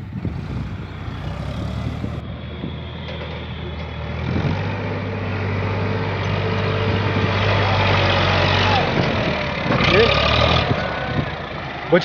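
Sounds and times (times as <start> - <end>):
diesel tractor engine running: 0.0 - 12.0.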